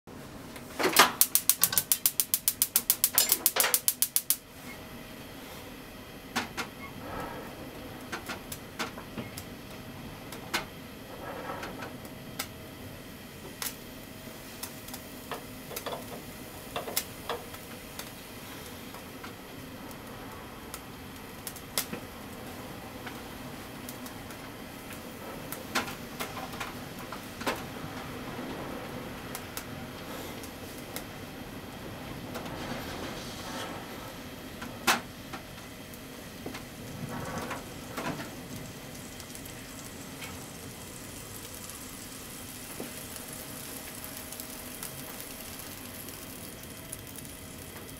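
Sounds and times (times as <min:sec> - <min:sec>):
gas burner running: 0:00.1 - 0:47.9
gas hob igniter clicking: 0:00.6 - 0:04.5, 0:14.6 - 0:18.2
frying pan ticking and crackling: 0:01.0 - 0:04.5, 0:07.9 - 0:31.7, 0:34.5 - 0:47.9.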